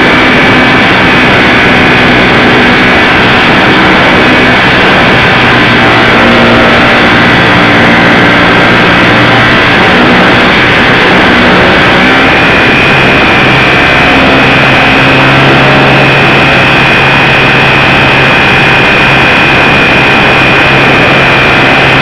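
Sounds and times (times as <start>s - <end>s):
model plane motor droning: 0.0s - 22.0s
wind rushing on microphone: 0.0s - 22.0s.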